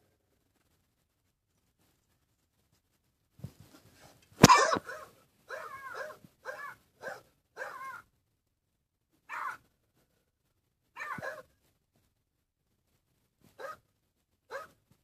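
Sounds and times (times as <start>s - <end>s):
animal yelping: 4.4s - 8.1s, 9.3s - 9.6s, 11.0s - 11.4s.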